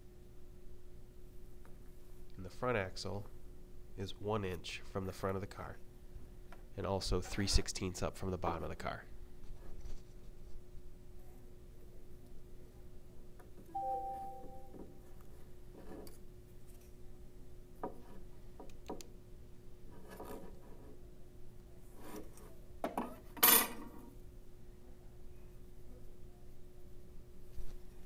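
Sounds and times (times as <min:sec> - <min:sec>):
ruler scraping on wood: 0:19.9 - 0:21.0, 0:22.0 - 0:22.6.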